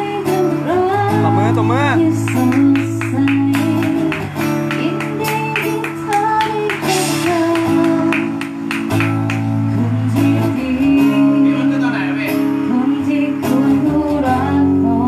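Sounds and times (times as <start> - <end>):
person singing: 0.0 - 8.7, 9.7 - 15.0
acoustic guitar strumming: 0.0 - 15.0.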